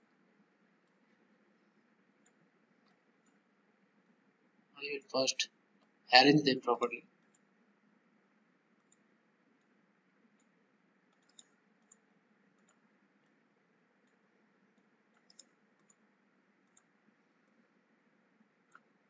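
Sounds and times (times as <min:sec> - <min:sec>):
faint mouse clicks: 0:02.2 - 0:03.5, 0:07.2 - 0:07.5, 0:08.7 - 0:13.4, 0:14.0 - 0:17.6, 0:18.4 - 0:19.0.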